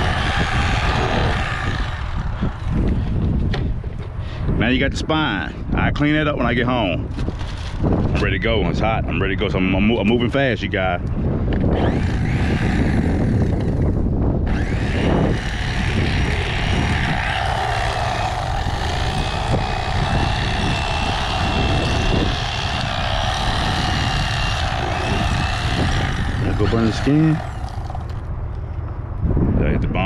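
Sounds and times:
electric fillet knife buzzing: 0.0 - 3.1, 11.7 - 28.3.

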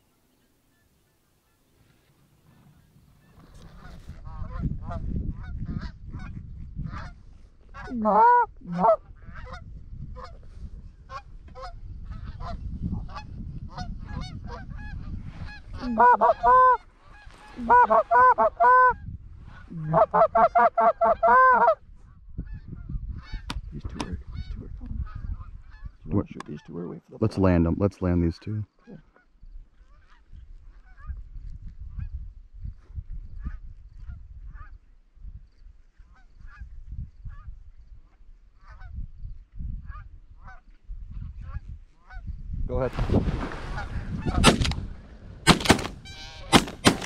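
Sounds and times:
geese honking: 6.9 - 10.4, 11.1 - 21.8, 45.4 - 47.0.

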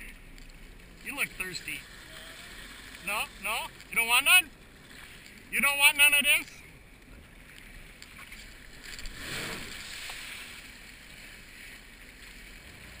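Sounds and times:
wind: 0.0 - 13.0
water spray rushing: 8.9 - 10.8
jet ski engine: 9.6 - 13.0.

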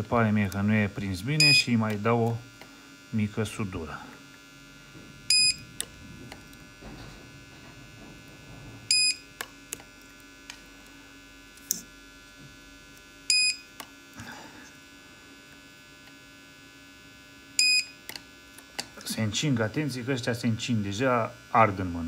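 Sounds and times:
steady electrical hum: 0.0 - 22.0
spot welder snap: 4.3 - 14.2.

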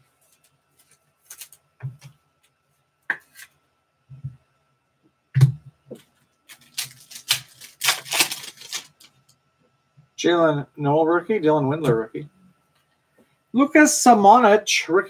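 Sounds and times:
foil wrappers crinkling: 0.3 - 1.7, 6.5 - 9.3.

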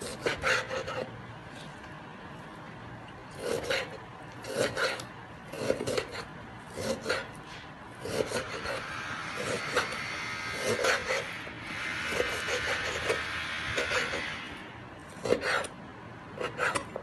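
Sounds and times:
knife slicing meat on a cutting board: 0.0 - 1.1, 3.3 - 8.8.

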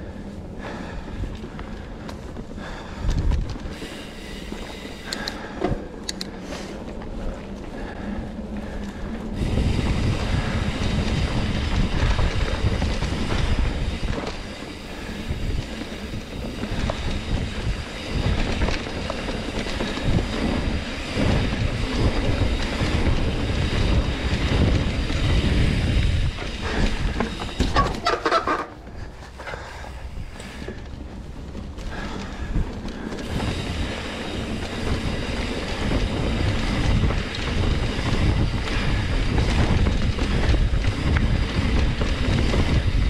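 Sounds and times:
bike rattling: 0.0 - 43.0
bike tyres rumbling over dirt: 0.0 - 43.0
wind on microphone: 7.8 - 29.1, 31.8 - 43.0
high squeaks: 27.6 - 28.8.

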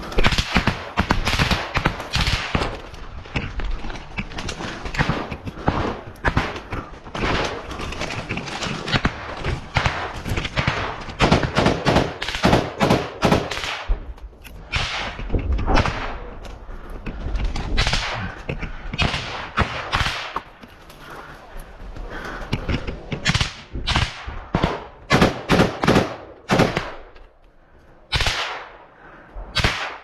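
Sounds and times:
small-arms gunfire: 0.1 - 2.8, 4.9 - 7.6, 8.8 - 14.0, 17.7 - 18.3, 19.0 - 20.5, 23.2 - 27.2, 28.1 - 28.8, 29.6 - 30.0.

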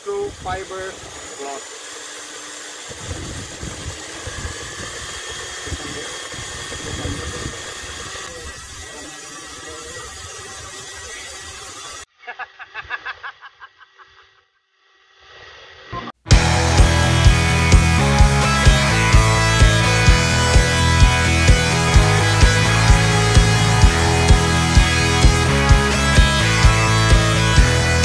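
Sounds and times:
cordless drill stirring liquid: 0.0 - 12.1
wind on microphone: 2.9 - 8.8
person laughing: 12.1 - 14.5.

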